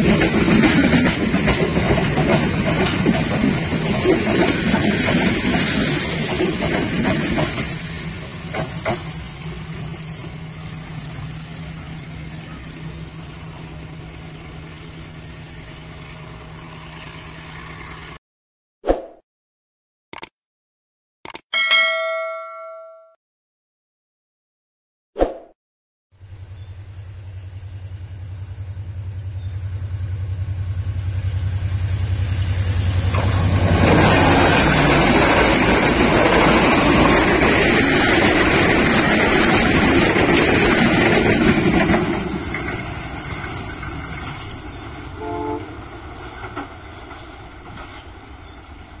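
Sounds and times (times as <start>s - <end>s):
train wheels clattering on rails: 0.0s - 10.4s, 32.3s - 49.0s
diesel locomotive drone: 0.0s - 18.2s, 26.2s - 49.0s
train horn note: 45.2s - 45.8s.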